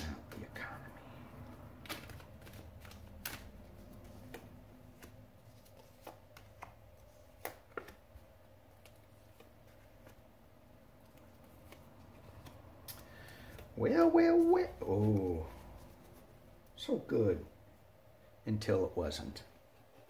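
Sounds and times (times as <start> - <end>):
low room hum: 0.0 - 20.0
cards being shuffled: 1.4 - 16.3.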